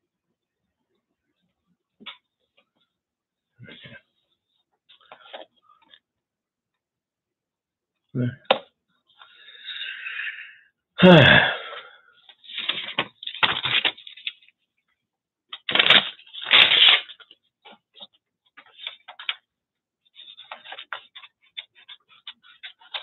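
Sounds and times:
paper rustling and clattering: 12.3 - 14.6, 15.5 - 19.5, 20.1 - 23.0.

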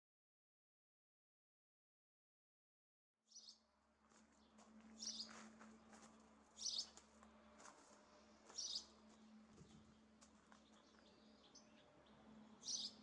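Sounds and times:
faint steady hum: 3.6 - 13.0
small bird chirping: 6.6 - 6.9, 8.5 - 8.9, 12.6 - 13.0.

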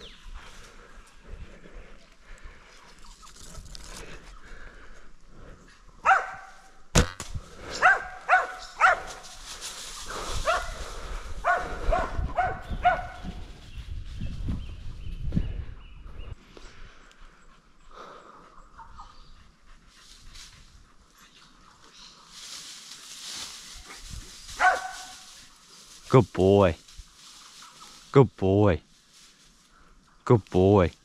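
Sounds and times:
dog barking: 6.0 - 6.6, 7.8 - 9.2, 10.4 - 10.8, 11.4 - 13.2, 24.6 - 25.2
sharp crack: 6.9 - 7.4
animals scuffling: 21.8 - 26.1, 26.8 - 28.1.

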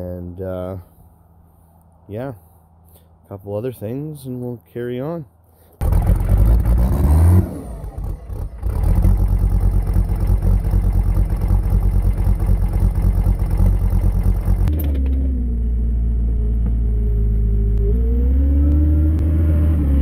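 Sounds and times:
diesel engine revving: 5.8 - 20.0
engine whine: 5.8 - 20.0.

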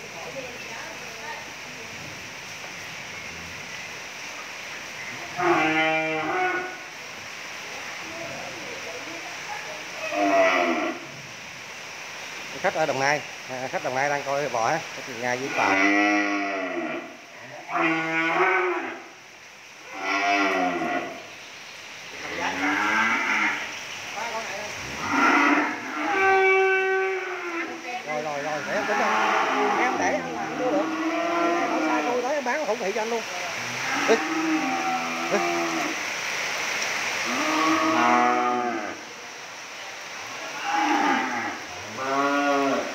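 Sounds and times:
cattle mooing: 5.4 - 6.8, 10.0 - 11.0, 15.5 - 19.0, 19.9 - 21.2, 22.2 - 23.7, 24.9 - 32.2, 33.7 - 36.0, 37.3 - 39.0, 40.6 - 42.9.

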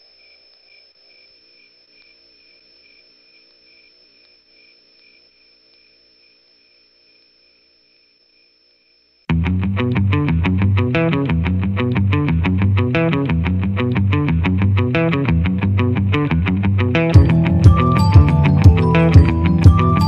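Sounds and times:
loud electric guitar music: 9.3 - 20.0.

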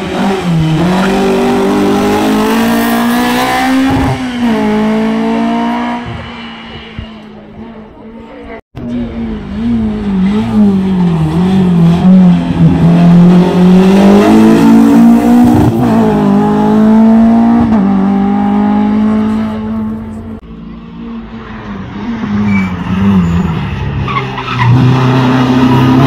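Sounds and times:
racing car engine at high revs: 0.0 - 26.0.

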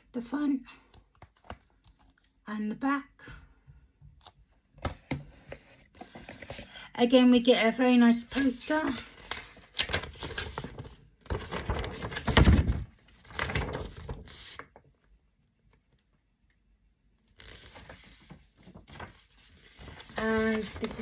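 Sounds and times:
paper rustling and crinkling: 8.3 - 14.8, 17.4 - 21.0.

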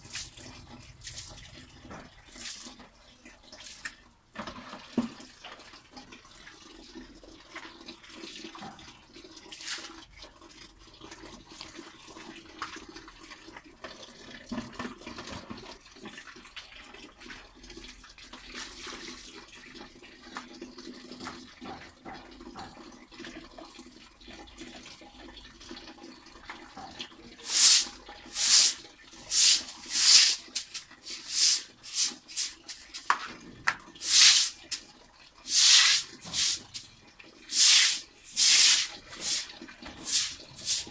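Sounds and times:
scrub brush scouring wet concrete: 0.0 - 0.4, 27.4 - 33.2, 34.0 - 34.8, 35.5 - 36.9, 37.5 - 40.9.

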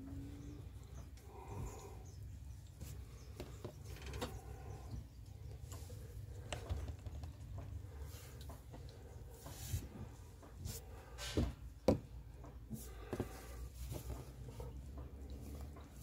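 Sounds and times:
steady low hum: 0.0 - 16.0
soft cloth rustles: 12.7 - 16.0.

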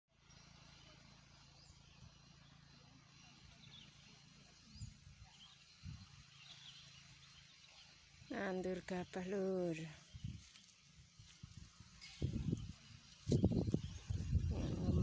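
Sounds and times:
faint bird chirps: 0.2 - 8.3.

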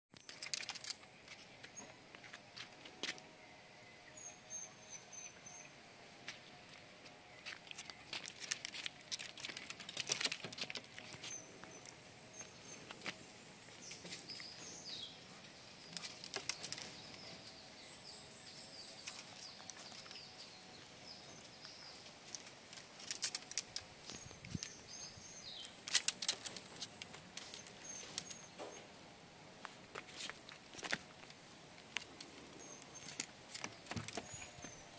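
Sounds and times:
birds chirping faintly: 0.1 - 34.9
dog claws tapping on bamboo: 25.6 - 28.4, 33.0 - 34.7.

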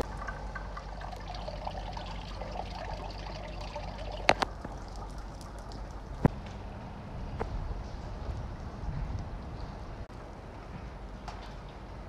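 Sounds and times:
water trickling: 0.0 - 6.3
low steady hum: 0.0 - 12.0.

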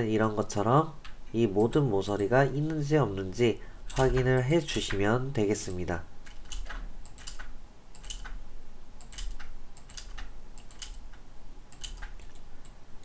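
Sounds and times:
faint low hum: 0.0 - 13.0
mouse and keyboard clicking: 6.3 - 8.4, 9.0 - 12.8.

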